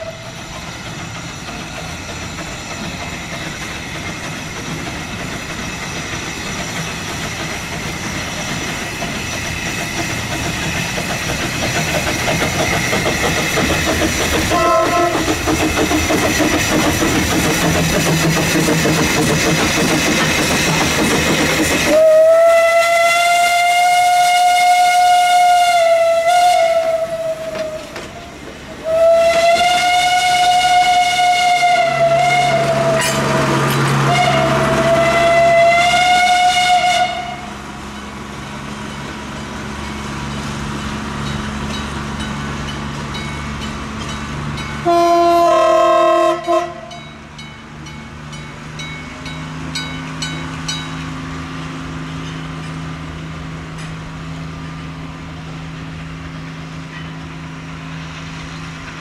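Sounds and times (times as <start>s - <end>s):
diesel locomotive chime horn: 0.0s - 0.4s, 14.5s - 15.4s, 21.9s - 28.0s, 28.8s - 37.7s, 44.7s - 47.4s
steam locomotive whistle: 0.0s - 0.6s, 14.3s - 16.2s, 21.6s - 37.8s, 44.8s - 47.1s
diesel locomotive engine running: 0.0s - 59.0s
wheels ticking on rail joints: 0.0s - 59.0s.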